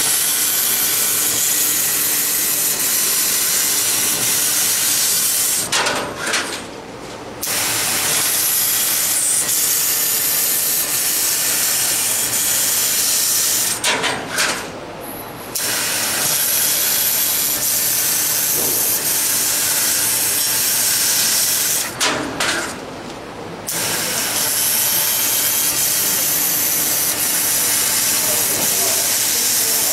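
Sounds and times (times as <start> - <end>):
laser cutter hissing: 0.0 - 5.7, 7.4 - 13.8, 15.6 - 22.0, 23.7 - 29.9.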